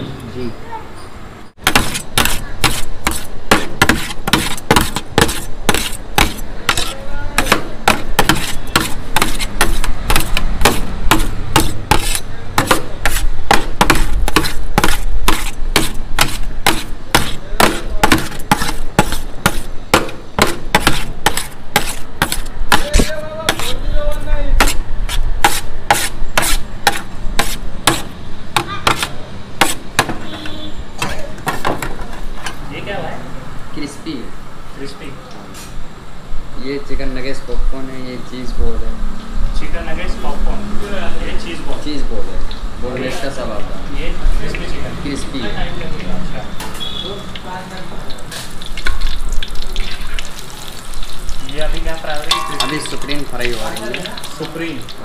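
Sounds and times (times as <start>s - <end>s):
metal spatula clanking on pan: 52.0s - 54.6s.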